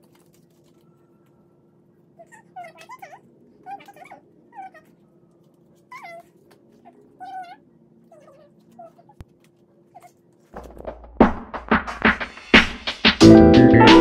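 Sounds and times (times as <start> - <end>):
dog whimpering: 2.2 - 5.1, 5.9 - 9.2, 9.9 - 10.2.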